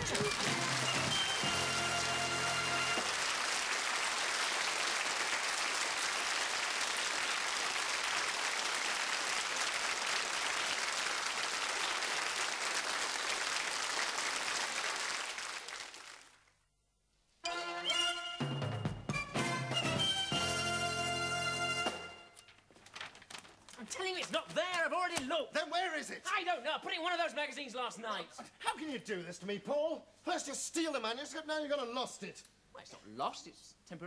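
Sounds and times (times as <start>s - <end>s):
studio audience applauding: 0.0s - 16.5s.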